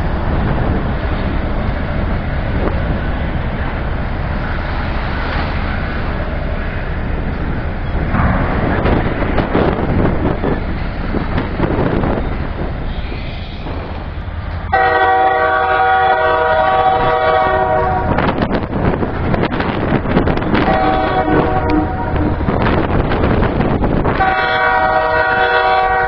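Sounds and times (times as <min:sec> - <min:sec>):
rumbling background: 0:00.0 - 0:25.4
faint distant train horn: 0:14.6 - 0:18.4, 0:20.5 - 0:22.6, 0:24.1 - 0:26.0
locomotive air horn blast: 0:14.7 - 0:18.3, 0:20.6 - 0:22.5, 0:24.1 - 0:26.0.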